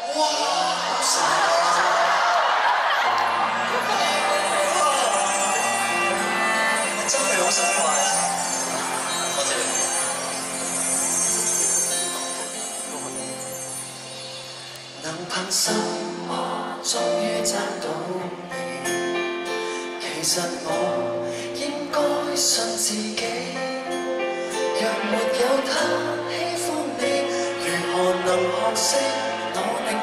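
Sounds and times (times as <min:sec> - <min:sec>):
keyboards: 0:01.4 - 0:30.0
guitar: 0:02.4 - 0:30.0
man singing: 0:03.8 - 0:08.7, 0:14.9 - 0:30.0.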